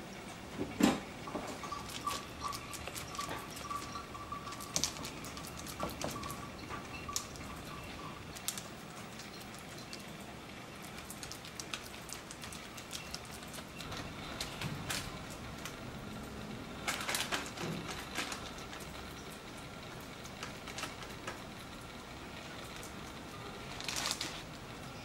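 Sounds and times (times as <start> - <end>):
parchment paper crackling: 1.5 - 10.1, 10.7 - 15.8, 16.7 - 21.6, 22.4 - 25.0.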